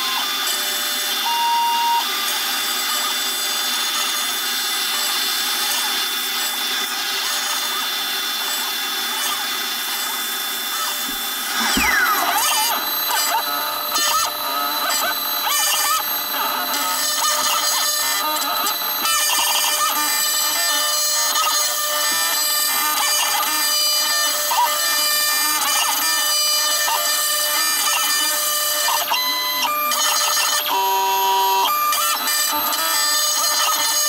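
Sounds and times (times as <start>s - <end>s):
stepper motor tones: 0.0s - 34.0s
held electronic tones: 1.2s - 2.0s, 11.0s - 16.2s
spindle whine: 9.8s - 20.9s.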